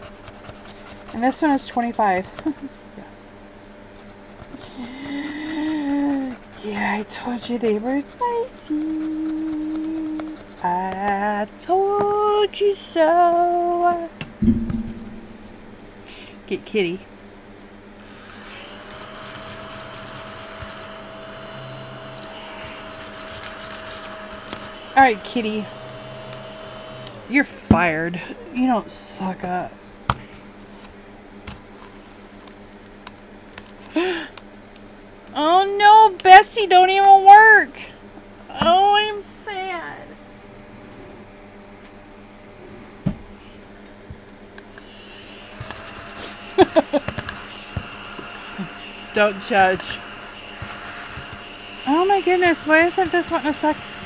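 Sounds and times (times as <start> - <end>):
mini vacuum whining: 18.0 - 27.7, 44.7 - 54.0.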